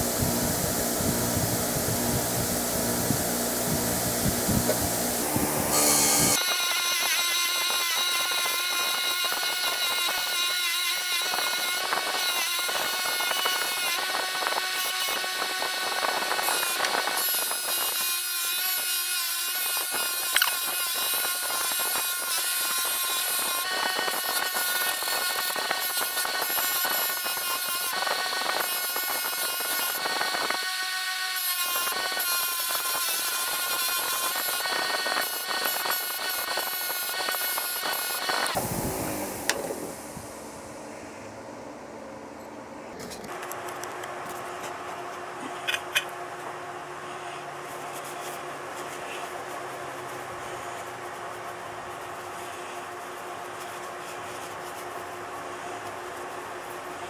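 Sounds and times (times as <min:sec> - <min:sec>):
bench grinder motor whine: 0:00.0 - 0:18.8, 0:19.7 - 0:40.0.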